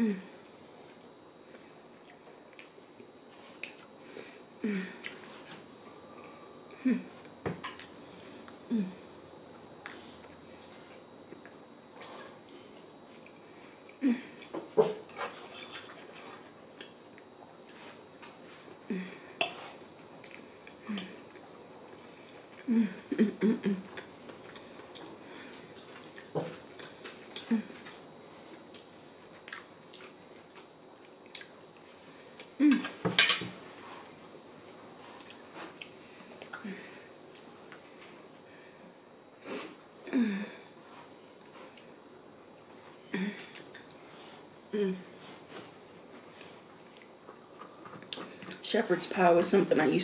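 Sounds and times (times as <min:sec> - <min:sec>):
chewing and mouth noises: 0:25.8 - 0:32.6
utensils and dishes clattering: 0:32.7 - 0:33.5.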